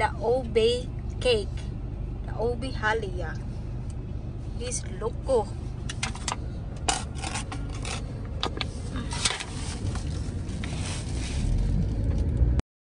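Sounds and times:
low rumble of car: 0:00.0 - 0:12.6
plastic spoon scraping: 0:06.0 - 0:11.6.

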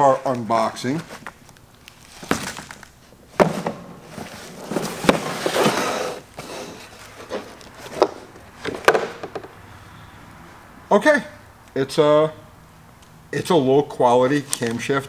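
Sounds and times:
cardboard packaging rustling: 0:00.2 - 0:09.2
plastic case sliding on wood: 0:03.4 - 0:09.5.

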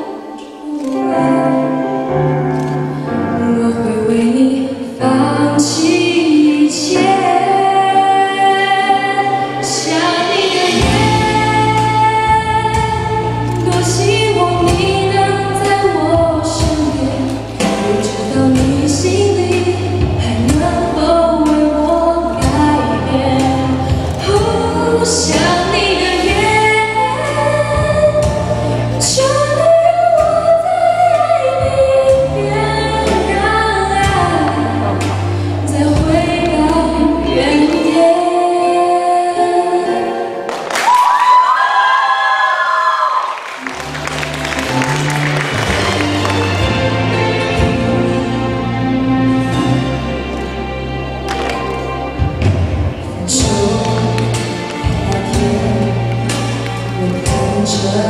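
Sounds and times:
woman singing pop ballad: 0:00.0 - 0:02.1, 0:03.2 - 0:40.4, 0:53.0 - 0:58.0
instrumental accompaniment: 0:00.0 - 0:40.8, 0:43.6 - 0:58.0.

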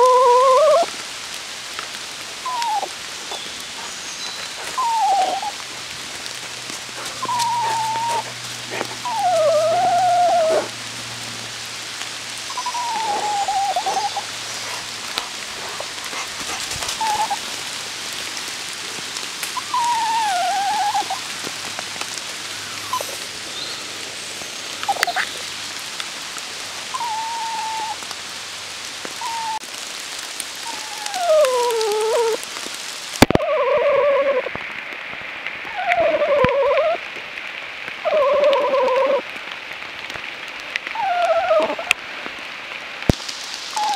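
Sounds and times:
dog whining: 0:00.0 - 0:00.9, 0:02.4 - 0:05.7, 0:07.0 - 0:10.8, 0:12.5 - 0:17.4, 0:19.6 - 0:21.3, 0:22.8 - 0:23.3, 0:24.8 - 0:25.4, 0:27.0 - 0:28.0, 0:29.2 - 0:29.6, 0:30.6 - 0:32.4, 0:33.3 - 0:34.5, 0:35.7 - 0:37.0, 0:38.0 - 0:39.2, 0:40.9 - 0:42.0
steady rain falling: 0:00.0 - 0:43.9.

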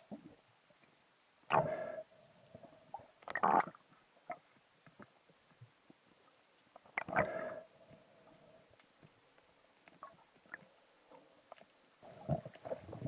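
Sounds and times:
faint clicks and knocks: 0:02.4 - 0:07.1, 0:07.7 - 0:13.0.

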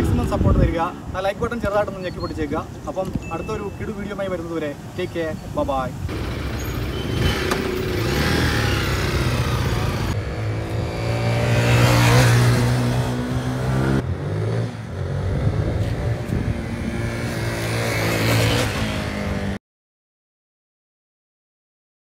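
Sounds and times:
motorcycle riding past: 0:06.1 - 0:19.6.

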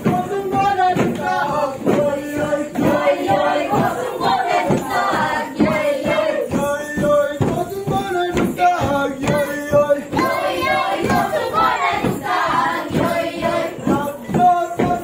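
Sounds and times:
group chanting: 0:00.0 - 0:06.6, 0:10.1 - 0:15.0
sharp beat: 0:00.0 - 0:15.0.

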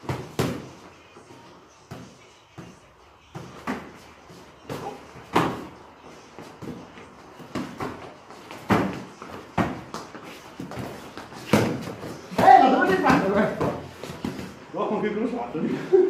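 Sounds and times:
padded gloves punches and kicks: 0:00.0 - 0:00.9, 0:04.6 - 0:14.6.

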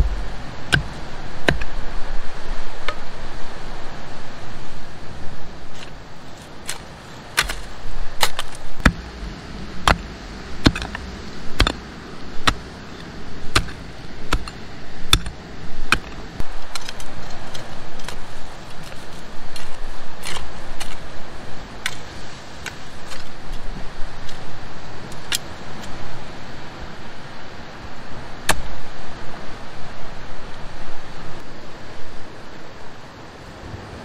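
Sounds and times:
hand hoe striking stony soil: 0:00.0 - 0:01.7, 0:06.6 - 0:09.1, 0:09.8 - 0:21.1
dirt scraping and clicking: 0:00.0 - 0:01.8, 0:05.6 - 0:26.0.

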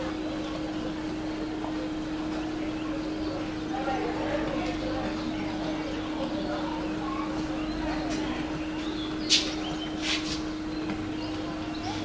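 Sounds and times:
distant voices: 0:00.0 - 0:12.0
steady low hum: 0:00.0 - 0:12.0
short hissing bursts: 0:09.3 - 0:10.5.

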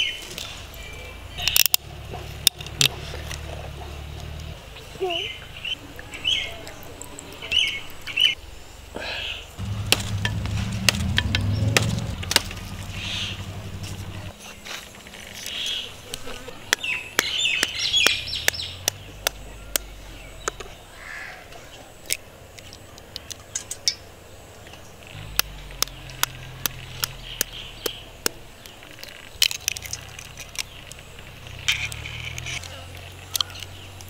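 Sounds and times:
birds chirping: 0:00.0 - 0:34.0.

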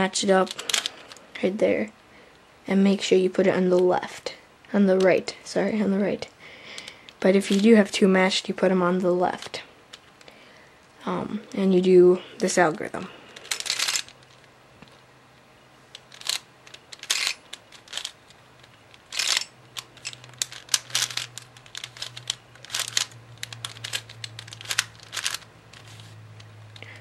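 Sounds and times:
plastic puzzle layers clicking: 0:13.4 - 0:14.4, 0:15.9 - 0:26.9.

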